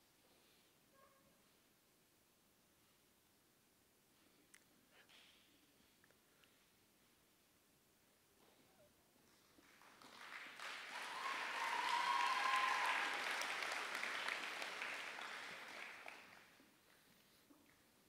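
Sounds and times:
audience applauding: 9.6 - 16.6.

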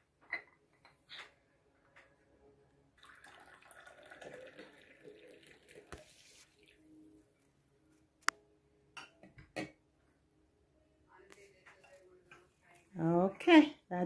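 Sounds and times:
tea pouring into cup: 3.0 - 6.8.

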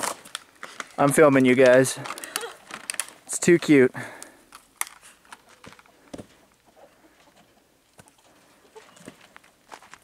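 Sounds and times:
hens clucking: 5.4 - 9.2.

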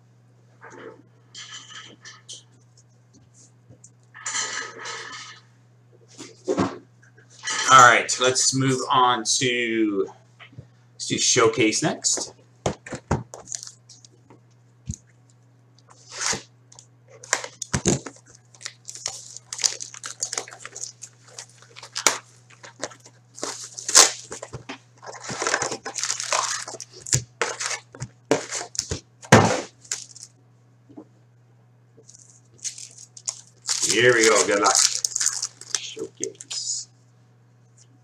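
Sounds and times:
plastic wrap tearing and crinkling: 13.3 - 14.1, 15.9 - 16.5, 17.2 - 30.3, 32.0 - 36.7
foil packs rustling: 13.4 - 14.1, 17.2 - 30.3, 32.0 - 36.8.

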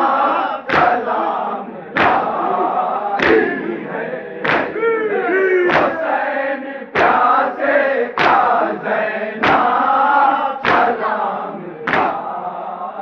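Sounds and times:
men chanting in chorus: 0.0 - 13.0
hands slapping chests in unison: 0.6 - 4.9, 5.7 - 6.2, 6.9 - 12.4.

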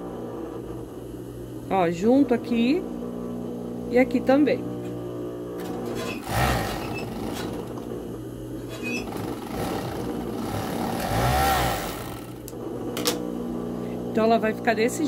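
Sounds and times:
sewing machine running: 5.6 - 7.8, 9.0 - 12.5.

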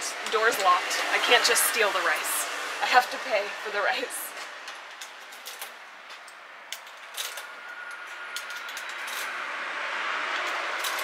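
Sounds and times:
coins clicking into slot: 5.0 - 5.8, 6.7 - 9.4, 10.4 - 11.0.

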